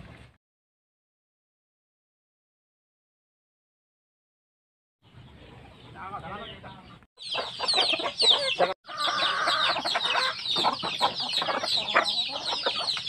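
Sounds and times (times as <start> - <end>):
chickens clucking: 5.2 - 13.0.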